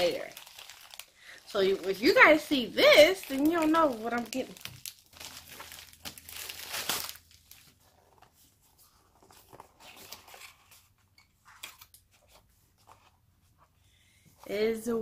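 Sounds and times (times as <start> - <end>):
wrapping rustling: 0.0 - 11.0.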